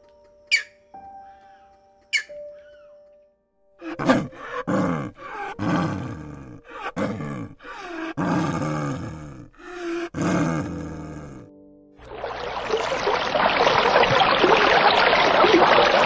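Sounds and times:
snow leopard calling: 0.5 - 0.8.

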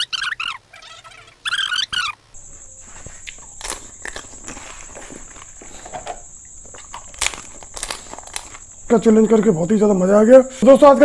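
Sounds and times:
plastic bottle squeaking: 0.0 - 9.0
thin high whine: 2.4 - 10.5
plastic bottle clicks and crinkles: 3.6 - 8.7.

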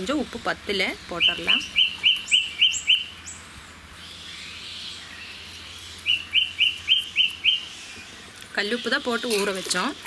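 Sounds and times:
bird chirping: 0.1 - 10.0.

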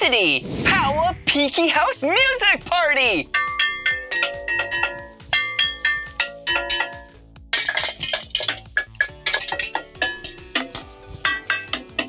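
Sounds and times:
spoons clanking on metal pots: 3.2 - 12.0.

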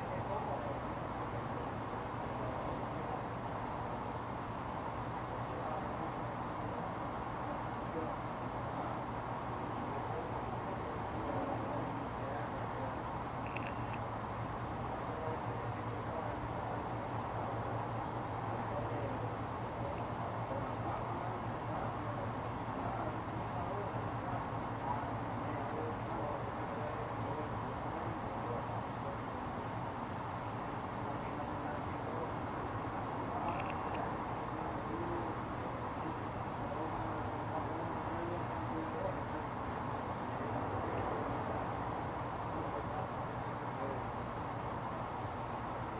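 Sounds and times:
high-pitched insect trill: 0.0 - 45.9.

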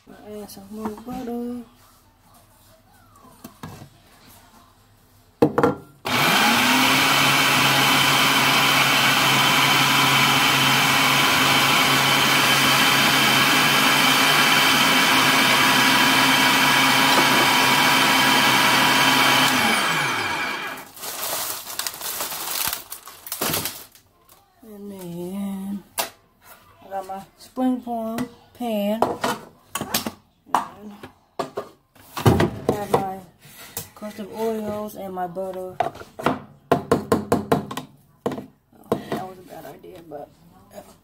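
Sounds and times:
food processor motor whine: 6.1 - 20.9.

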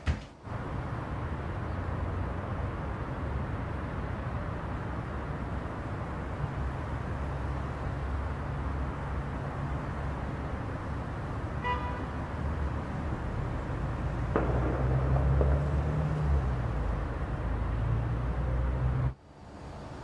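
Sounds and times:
low rumble of traffic: 0.0 - 20.0
sharp knock: 14.4 - 16.0.

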